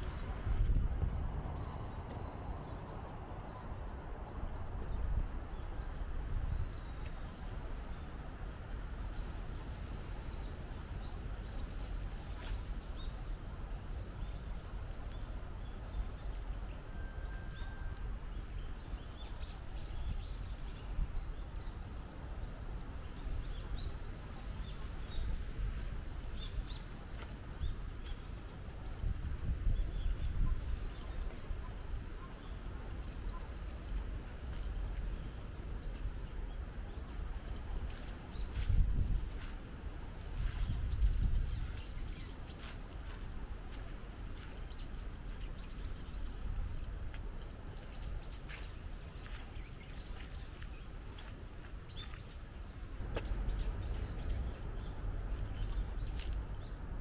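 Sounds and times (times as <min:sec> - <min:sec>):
wind buffeting microphone: 0:00.0 - 0:07.0, 0:22.7 - 0:57.0.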